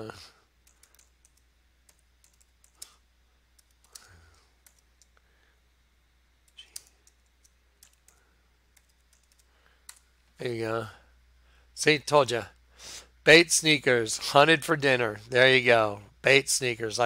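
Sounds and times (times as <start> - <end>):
steady low hum: 0.0 - 17.0
computer keyboard keystrokes: 0.6 - 3.0, 3.6 - 5.2, 6.5 - 10.0.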